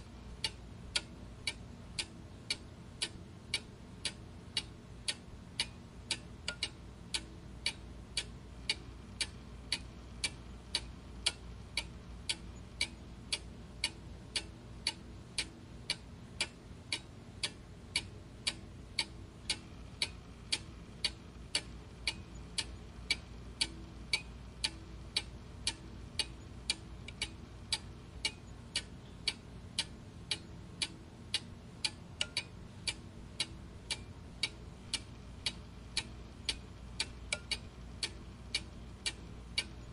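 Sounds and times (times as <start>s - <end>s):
clock ticking: 0.0s - 39.9s
faint low hum: 0.0s - 39.9s.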